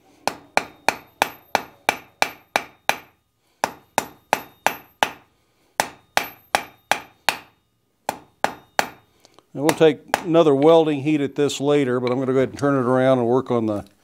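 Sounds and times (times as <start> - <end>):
hammer striking hot iron on anvil: 0.2 - 10.8.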